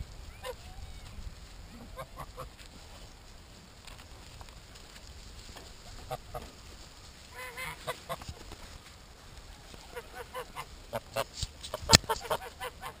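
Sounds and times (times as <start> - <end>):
geese honking: 7.3 - 8.2, 9.9 - 13.0.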